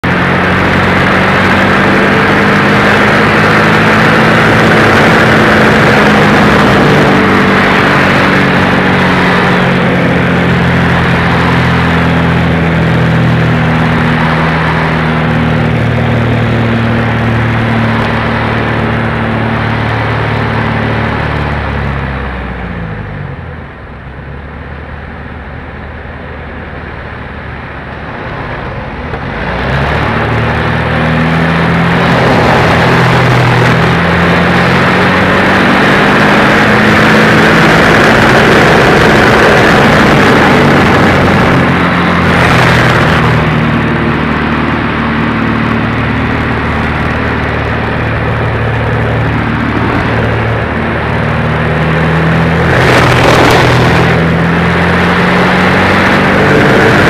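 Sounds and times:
propeller plane engine: 0.0 - 57.0
rush of air: 27.7 - 57.0.

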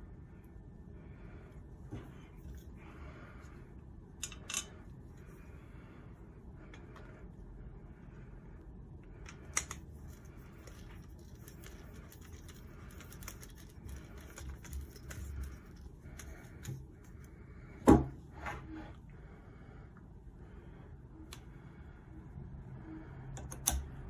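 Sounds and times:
small clicks scrapes and rattles: 4.2 - 4.8, 9.2 - 17.2.

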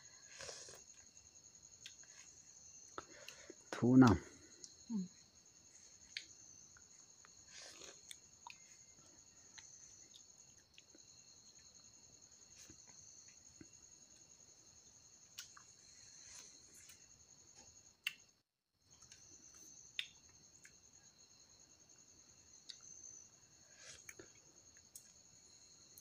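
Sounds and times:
crickets chirping: 0.0 - 26.0
person eating crunchily: 7.3 - 8.8.

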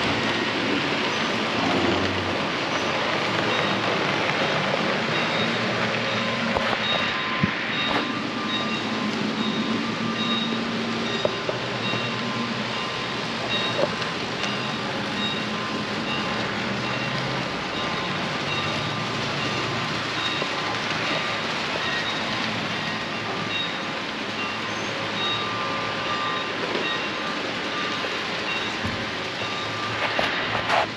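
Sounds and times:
model trains rolling: 0.0 - 30.9
faint high-pitched beep: 5.1 - 19.6, 24.4 - 27.2, 27.8 - 30.2.

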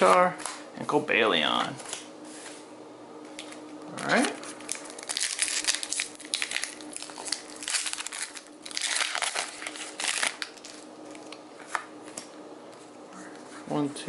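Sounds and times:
foil wrapper crinkling: 3.4 - 12.3.

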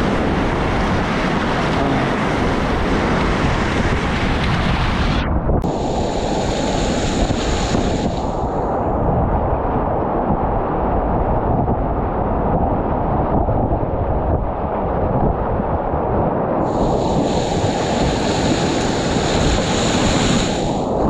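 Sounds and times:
whitewater rapids rushing: 0.0 - 5.0.

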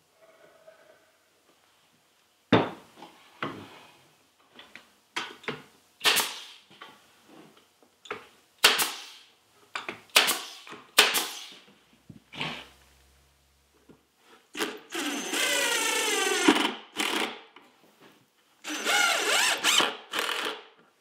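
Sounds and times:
nail gun firing: 6.0 - 6.6, 8.6 - 9.2, 10.1 - 11.5.

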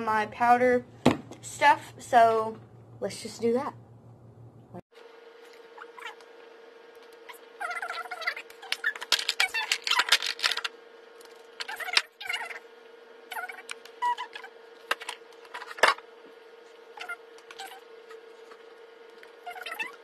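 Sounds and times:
faint steady hum: 0.0 - 20.0
makeup containers clicking and rattling: 8.7 - 10.7.

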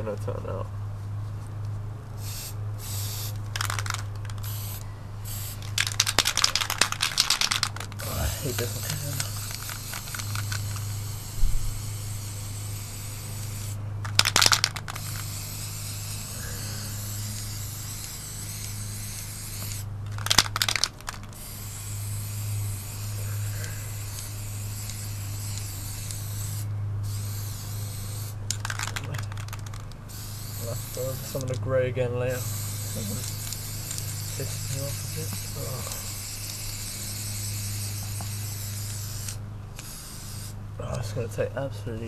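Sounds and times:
crackly spray bursts: 1.1 - 31.7, 32.3 - 40.6
spray paint can hissing: 2.2 - 31.6, 32.3 - 40.6.

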